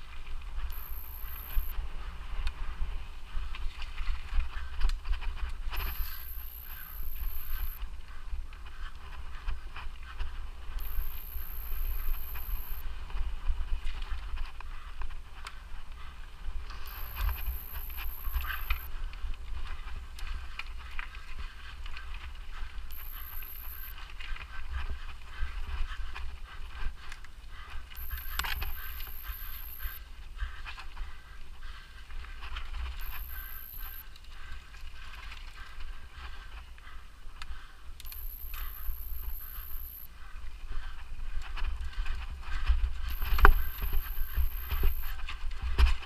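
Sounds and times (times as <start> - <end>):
faint high whine: 0.6 - 1.8, 5.7 - 7.8, 10.7 - 12.9, 16.8 - 18.9, 22.9 - 24.0, 28.0 - 30.1, 32.9 - 34.1, 38.0 - 40.3, 43.0 - 45.2
wind rumble on microphone: 12.8 - 17.4.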